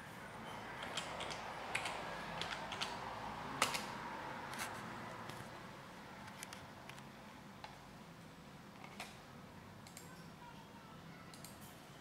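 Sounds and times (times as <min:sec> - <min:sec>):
steady background hum: 0:00.0 - 0:12.0
keyboard keys clicking: 0:00.8 - 0:03.0.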